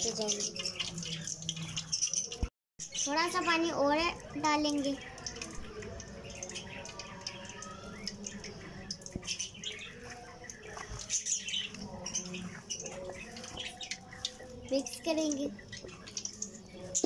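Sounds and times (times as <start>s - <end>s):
faint high chirps: 4.2s - 17.0s.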